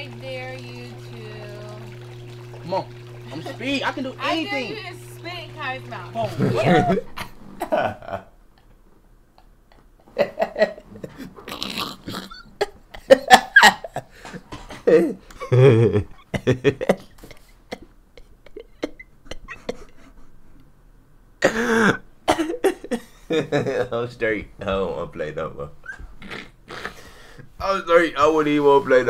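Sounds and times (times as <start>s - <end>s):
man laughing hard: 6.3s - 8.3s, 10.1s - 11.2s, 12.6s - 17.1s
breathing: 26.8s - 27.6s.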